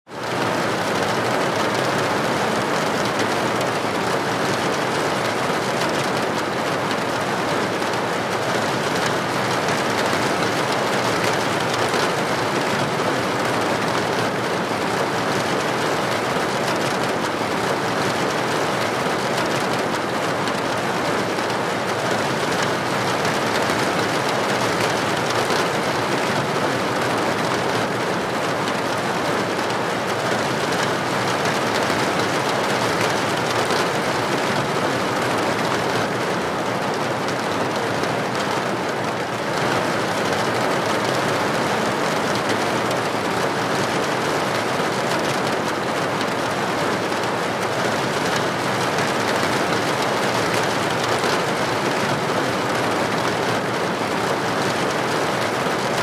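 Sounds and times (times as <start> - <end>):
heavy rain on metal roofs: 0.0 - 56.0.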